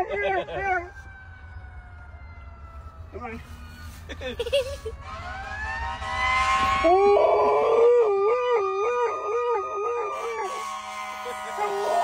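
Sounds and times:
emergency siren wailing: 0.0 - 12.0
dog howling: 6.9 - 10.7.

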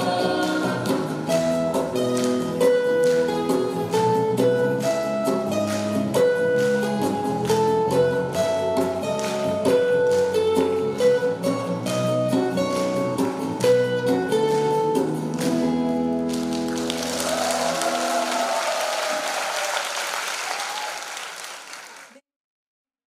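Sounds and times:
acoustic guitars bass and djembe: 0.0 - 18.7
audience applause: 16.2 - 22.2
audience shouts: 16.9 - 21.9.

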